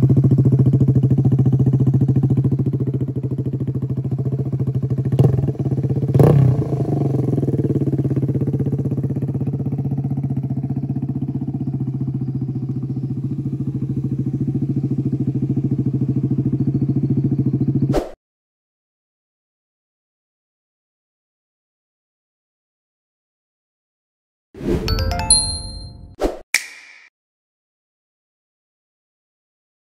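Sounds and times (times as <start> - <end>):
motorcycle engine idling: 0.0 - 17.9
throttle blip: 25.2 - 27.1.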